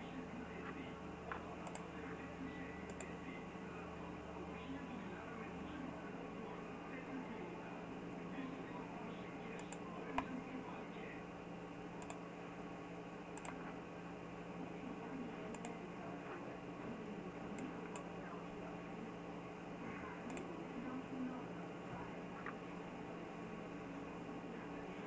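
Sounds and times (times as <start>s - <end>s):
electrical hum and hiss: 0.0s - 25.0s
computer mouse clicking: 0.6s - 1.9s, 2.9s - 3.2s, 9.6s - 10.3s, 12.0s - 12.3s, 13.3s - 13.8s, 15.5s - 15.8s, 20.3s - 20.5s.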